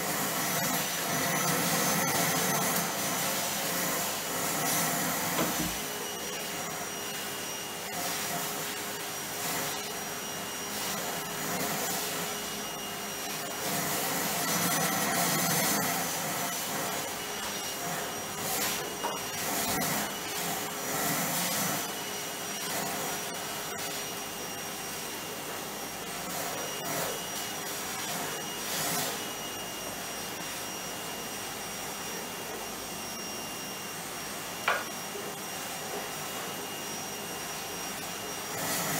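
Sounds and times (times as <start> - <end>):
vacuum cleaner running: 0.0 - 38.9.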